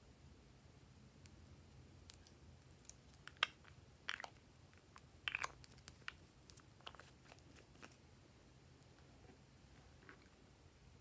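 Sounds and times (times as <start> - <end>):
slime clicking and crackling: 2.0 - 8.0.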